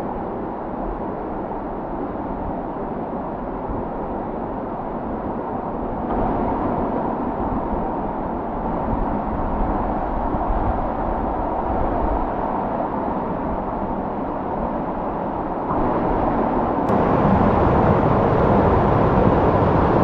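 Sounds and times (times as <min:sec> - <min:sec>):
waterfall rushing into pool: 0:16.9 - 0:20.0.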